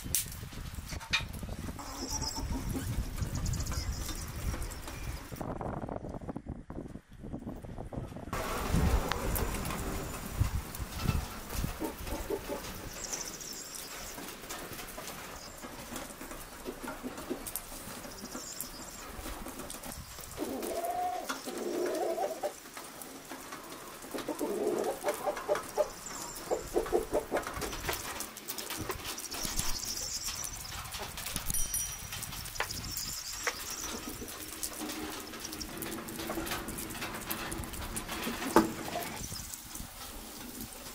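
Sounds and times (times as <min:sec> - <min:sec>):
small birds chirping: 0:01.4 - 0:05.4, 0:09.9 - 0:20.6, 0:24.8 - 0:35.9
pigeons cooing: 0:08.6 - 0:28.2.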